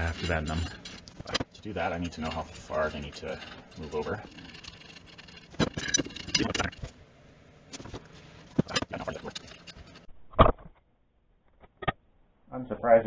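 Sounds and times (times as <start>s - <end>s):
metal parts clicking and clattering: 0.0s - 7.0s, 7.7s - 10.1s.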